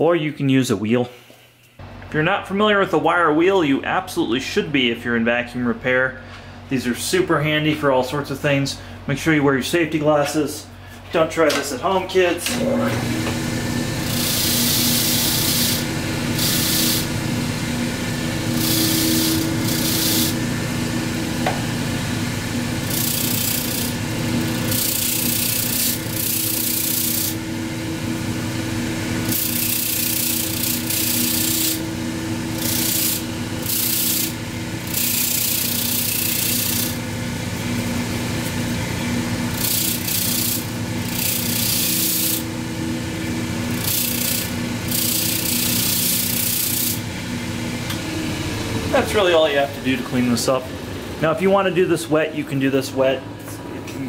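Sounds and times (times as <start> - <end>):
bench grinder motor humming: 12.6 - 51.3
wire wheel scraping brush: 14.0 - 17.1, 18.5 - 20.4, 22.8 - 27.4, 29.3 - 31.8, 32.5 - 37.0, 39.5 - 42.4, 43.8 - 47.0.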